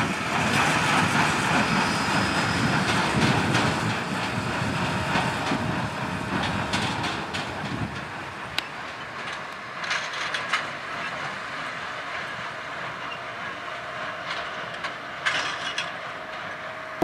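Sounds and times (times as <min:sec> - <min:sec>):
baler mechanical rumble: 0:00.0 - 0:09.5
machinery clanking and rattling: 0:00.3 - 0:11.4, 0:14.2 - 0:16.5.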